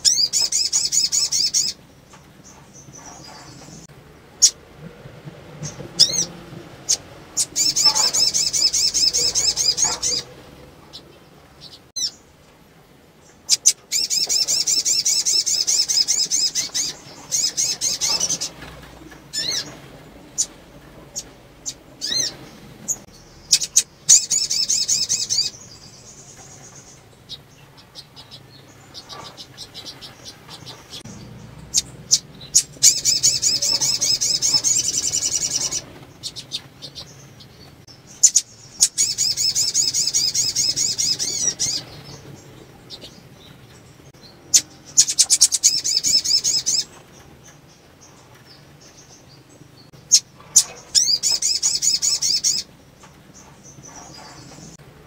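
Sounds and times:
bird trilling: 5.7 - 12.2, 13.5 - 25.8, 28.0 - 37.1, 38.1 - 42.3, 44.4 - 46.9, 50.1 - 52.7
bird chips and twitters: 6.9 - 10.3, 13.4 - 27.4, 28.0 - 43.2, 44.1 - 49.3, 49.9 - 52.7.

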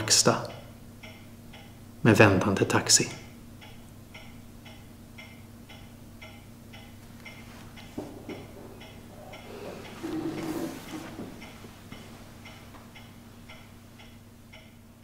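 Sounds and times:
clock ticking: 0.1 - 15.0
person getting up from chair: 7.4 - 12.9.

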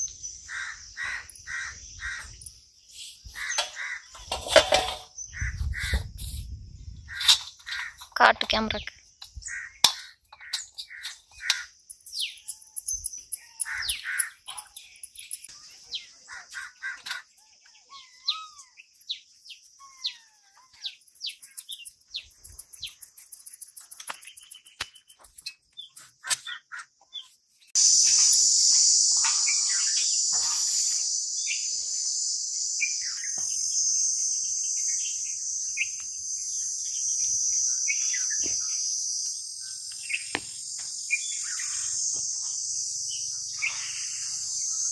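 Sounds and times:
high-pitched insect drone: 0.0 - 6.7, 10.6 - 16.4, 27.8 - 44.9
birds chirping and calling: 0.0 - 44.9.

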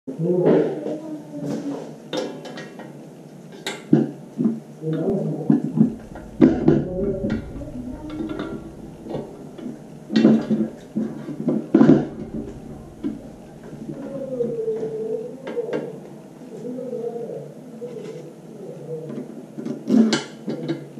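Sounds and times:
metal scraping and squeaking: 5.8 - 15.0.

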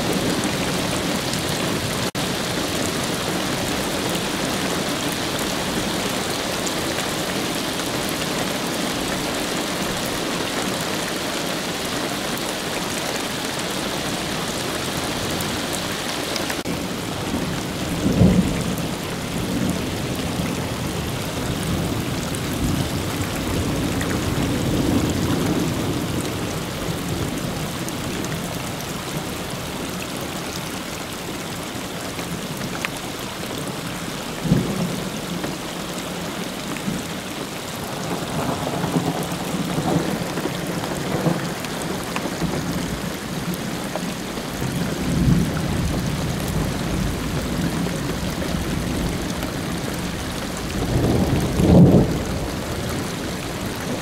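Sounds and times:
heavy rain falling: 0.0 - 54.0
thunder rumbling: 44.6 - 54.0.

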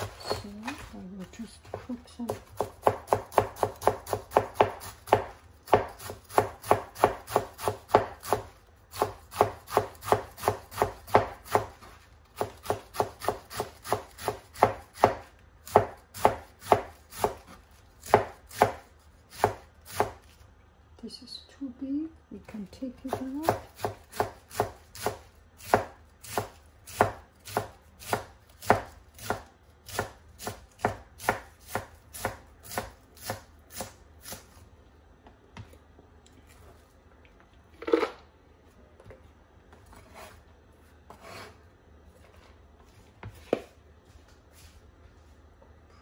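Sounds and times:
knife chopping on cutting board: 1.7 - 20.2, 23.1 - 34.5, 41.1 - 41.6.

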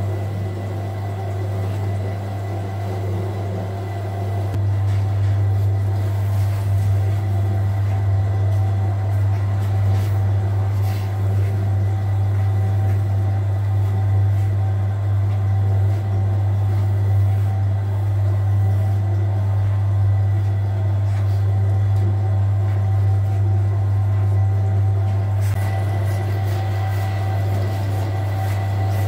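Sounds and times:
dough mixer motor humming: 0.0 - 29.0.

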